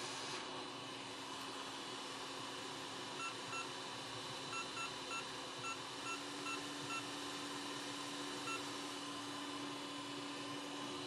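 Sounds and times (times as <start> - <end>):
hot air station hissing: 0.0 - 0.5.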